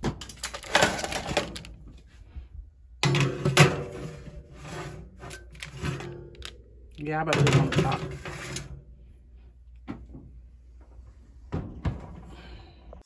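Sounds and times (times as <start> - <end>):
metal rack clatter: 0.0 - 1.7.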